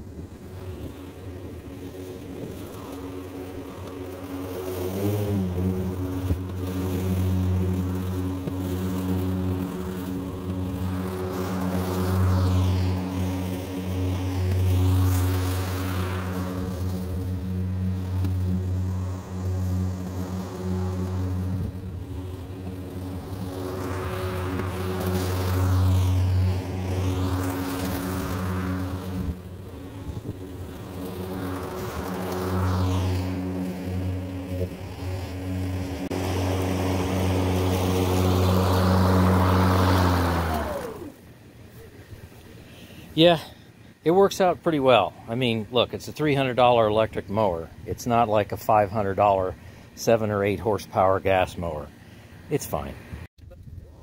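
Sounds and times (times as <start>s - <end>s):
electric lawn mower cutting grass: 0.0s - 53.8s.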